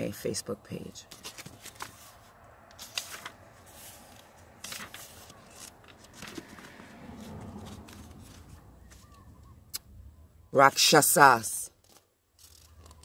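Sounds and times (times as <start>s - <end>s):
book pages turning: 1.1s - 9.3s, 11.8s - 13.0s.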